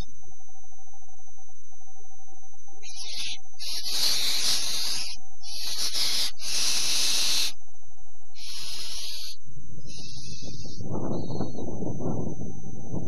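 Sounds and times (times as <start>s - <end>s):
owl rasping hiss calls: 2.8s - 7.6s, 8.4s - 11.3s.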